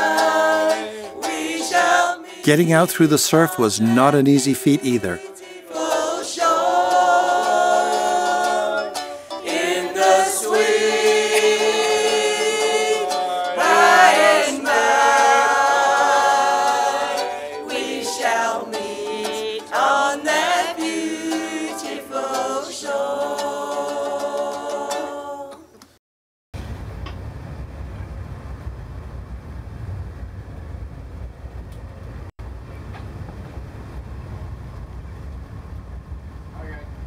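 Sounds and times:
choir singing without accompaniment: 0:00.0 - 0:25.8.

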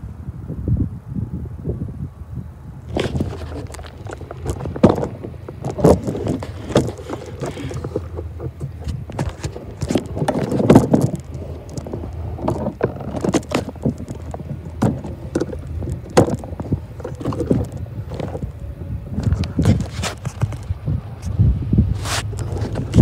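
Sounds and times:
steady low rumble: 0:00.0 - 0:23.0
footsteps on gravel: 0:02.9 - 0:18.6.

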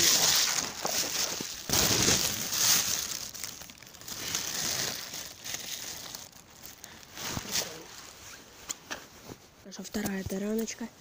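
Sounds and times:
crinkly rustling and crunching: 0:00.0 - 0:10.9.

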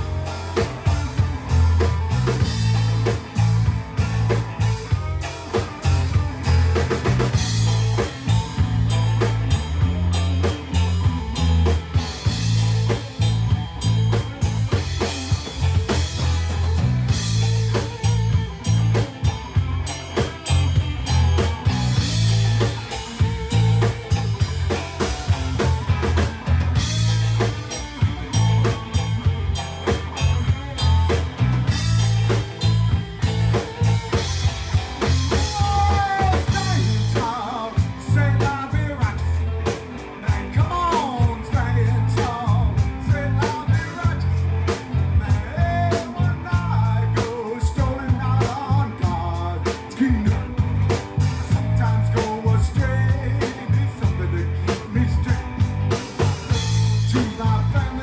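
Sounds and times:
live rock band playing: 0:00.0 - 0:58.0.

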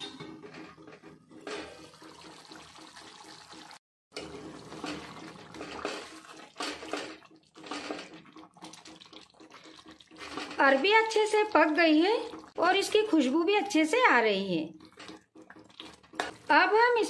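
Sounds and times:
ladle sloshing thick gravy: 0:04.2 - 0:12.6, 0:14.8 - 0:16.6.

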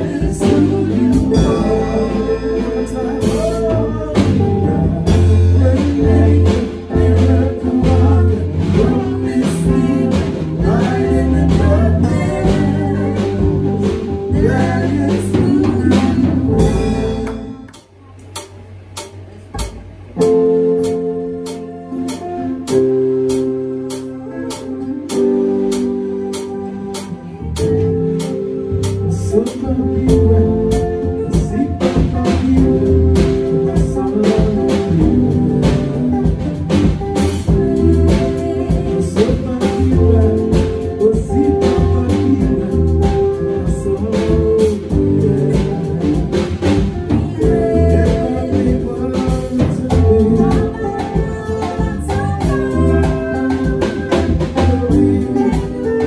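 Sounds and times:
electronic keyboard music: 0:00.0 - 0:56.0.

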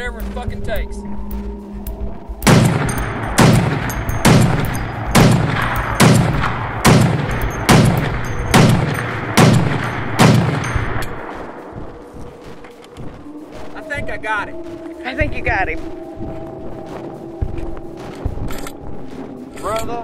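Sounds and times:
rifle shots with rolling echo: 0:02.4 - 0:11.7.

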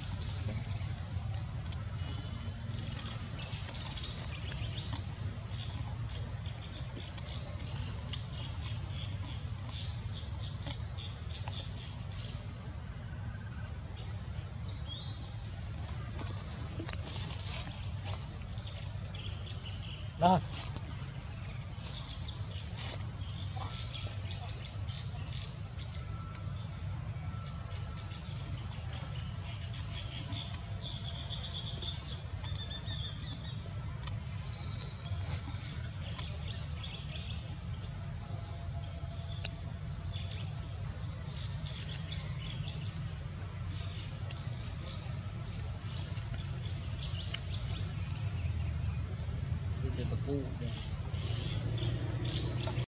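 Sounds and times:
small birds chirping: 0:00.0 - 0:12.7, 0:14.1 - 0:52.9
steady low rumble: 0:00.0 - 0:52.9
faint clicks: 0:45.9 - 0:48.4.

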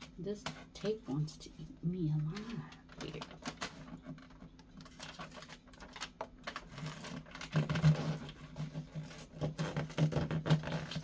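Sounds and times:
paper and cardboard crinkling: 0:00.0 - 0:11.0.

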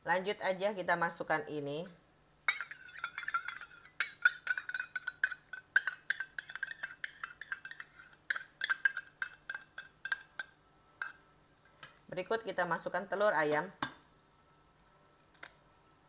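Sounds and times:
metal spoon clinking in steel bowl: 0:02.5 - 0:11.2.

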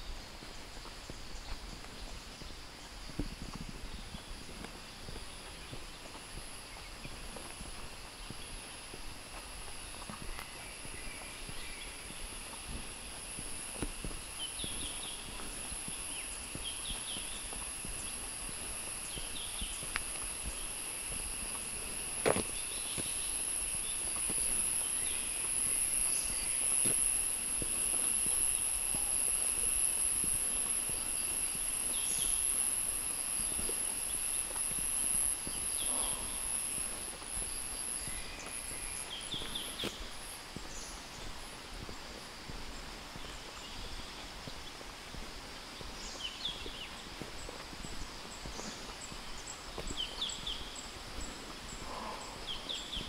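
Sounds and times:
high-pitched insect drone: 0:00.0 - 0:53.0
low insect hum: 0:00.0 - 0:53.0
soft footfalls: 0:00.0 - 0:53.0.

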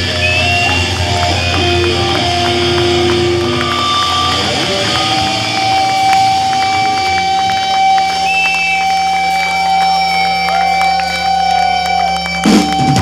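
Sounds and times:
low hum: 0:00.0 - 0:10.6
electric guitar feedback drone: 0:00.0 - 0:13.0
sliding guitar notes: 0:00.0 - 0:13.0.

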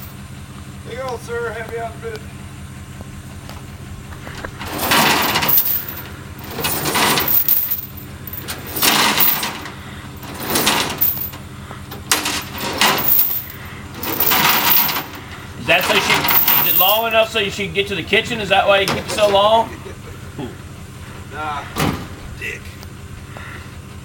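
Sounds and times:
truck engine running: 0:00.0 - 0:24.0
loud rattling bursts: 0:04.4 - 0:17.6.

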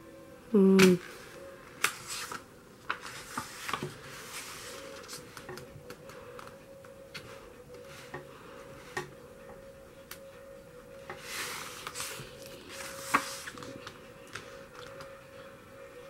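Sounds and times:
paper pages rustling: 0:01.7 - 0:06.6, 0:11.2 - 0:15.1.

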